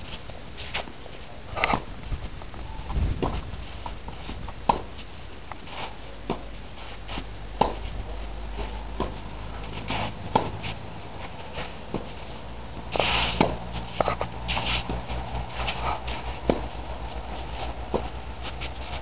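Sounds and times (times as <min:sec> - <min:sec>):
tennis racket hitting ball: 0:04.1 - 0:05.0, 0:06.2 - 0:19.0.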